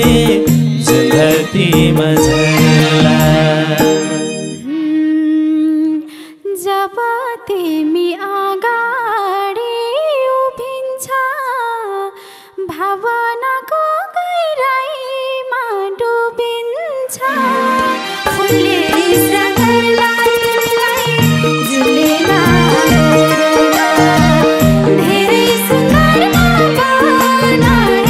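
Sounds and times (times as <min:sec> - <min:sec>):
band playing: 0:00.0 - 0:04.6, 0:17.4 - 0:28.0
woman singing unaccompanied: 0:04.6 - 0:28.0.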